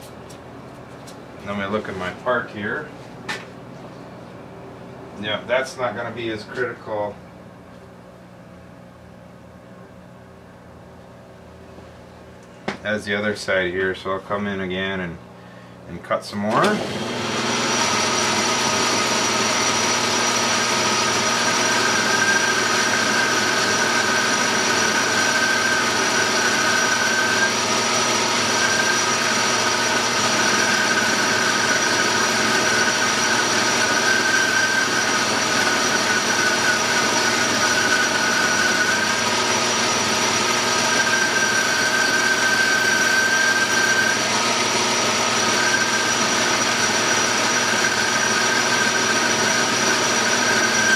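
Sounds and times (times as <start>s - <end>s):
metal lathe running: 16.8s - 50.9s.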